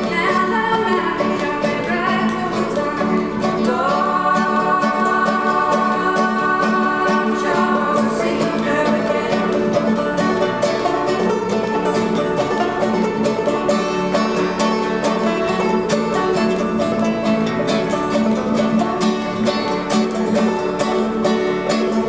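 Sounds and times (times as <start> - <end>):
acoustic guitar: 0.0 - 22.0
clawhammer banjo: 0.0 - 22.0.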